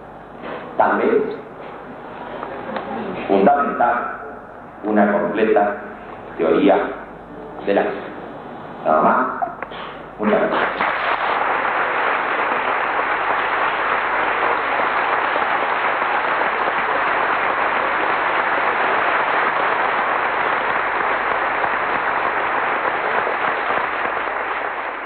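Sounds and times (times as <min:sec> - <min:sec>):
large audience applauding: 0:10.5 - 0:25.0.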